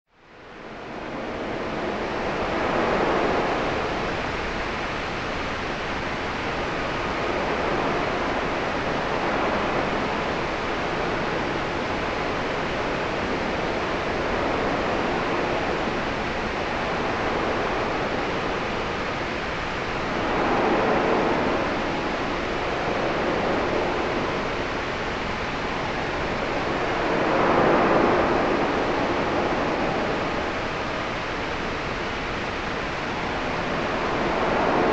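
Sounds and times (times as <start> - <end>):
steady white noise hiss: 0.1 - 34.9.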